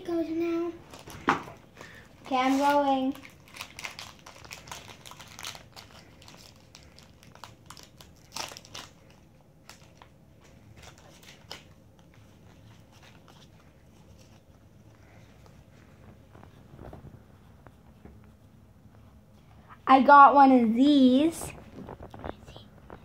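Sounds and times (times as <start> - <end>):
foil wrapper crinkling: 0.9 - 15.2
trading cards rustling: 0.9 - 18.0.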